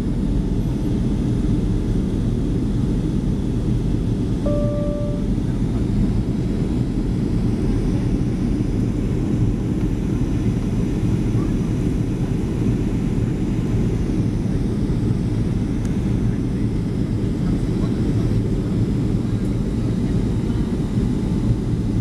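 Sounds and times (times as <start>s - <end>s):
airplane cabin rumble: 4.5s - 22.0s.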